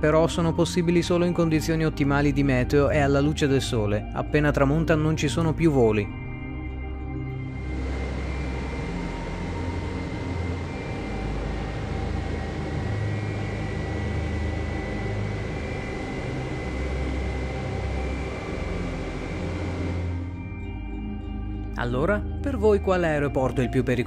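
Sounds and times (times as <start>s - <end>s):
faint high whine: 0.0s - 24.0s
uneven low rumble: 7.2s - 20.8s
distant airliner engine noise: 7.4s - 20.4s.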